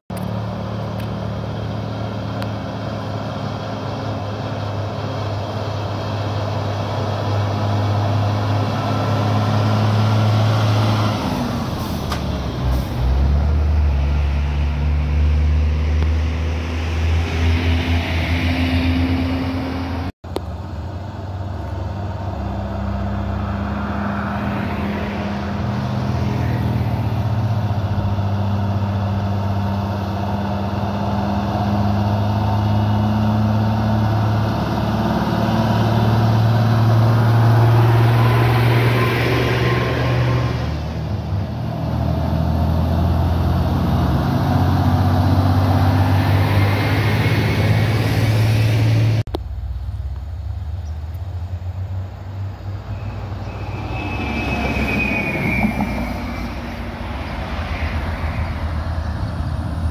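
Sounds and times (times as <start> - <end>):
diesel truck engine under load: 0.1 - 59.9.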